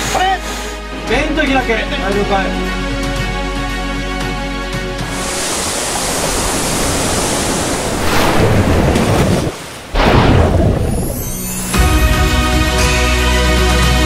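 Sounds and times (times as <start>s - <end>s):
seawater rushing and splashing: 5.0s - 12.2s.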